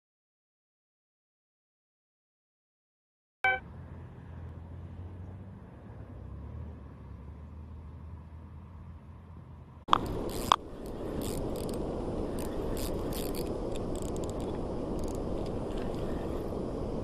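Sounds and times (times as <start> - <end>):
fishing reel clicking: 9.9 - 16.1.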